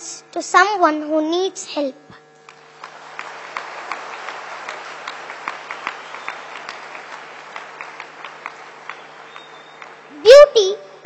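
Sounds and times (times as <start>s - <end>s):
low electrical hum: 0.0s - 11.0s
audience applauding: 2.4s - 10.3s.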